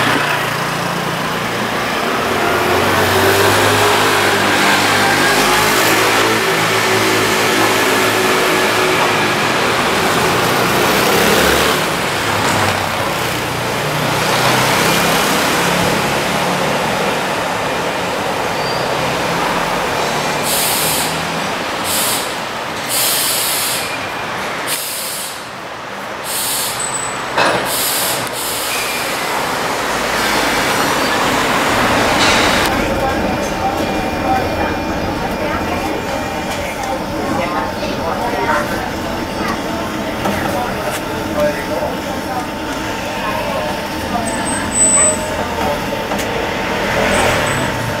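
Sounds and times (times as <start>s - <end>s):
tram rolling on rails: 0.0s - 48.0s
air brake hisses: 20.4s - 21.2s, 21.8s - 24.1s, 24.7s - 25.5s, 26.2s - 29.1s.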